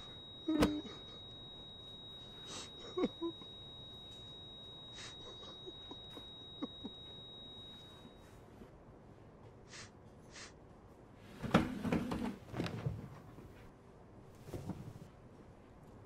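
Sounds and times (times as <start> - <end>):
chair knocks and scrapes: 11.3 - 13.6.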